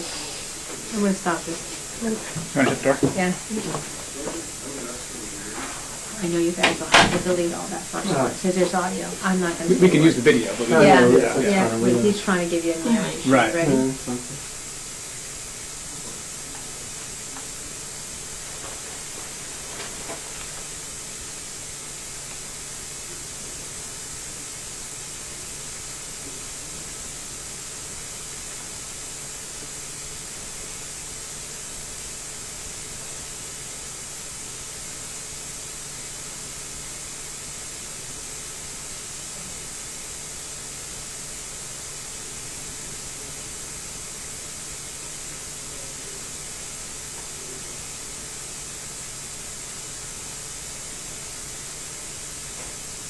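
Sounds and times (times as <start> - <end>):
faint high whine: 0.0 - 53.0
steady hiss: 0.0 - 53.0.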